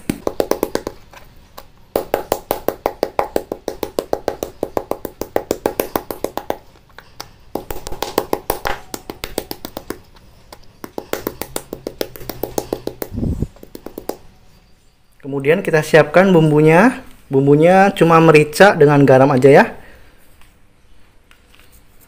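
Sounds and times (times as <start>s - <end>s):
wooden mortar pounding meat: 0.0s - 1.1s, 1.9s - 6.8s, 7.5s - 14.2s.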